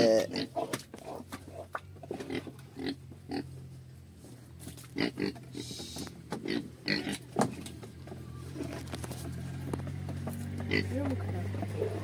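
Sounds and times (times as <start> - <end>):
pigs grunting and oinking: 0.0 - 3.6, 4.9 - 7.7, 10.5 - 12.0.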